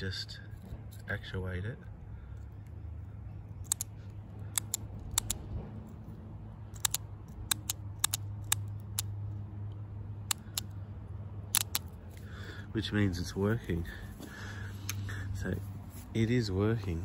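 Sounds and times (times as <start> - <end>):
solenoid clicking: 4.5 - 5.4.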